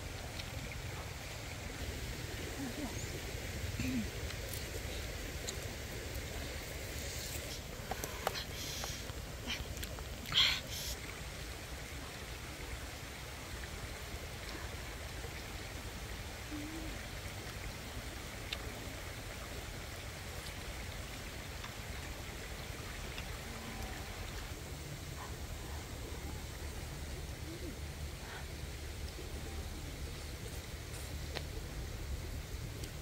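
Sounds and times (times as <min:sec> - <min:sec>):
steady hiss: 0:00.0 - 0:33.0
faint ticks: 0:07.3 - 0:11.2, 0:30.5 - 0:31.6.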